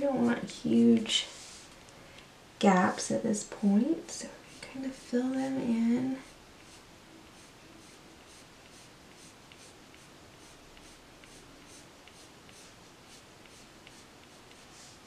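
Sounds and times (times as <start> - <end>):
coloured pencil scratching on paper: 0.0 - 0.6, 4.4 - 15.0.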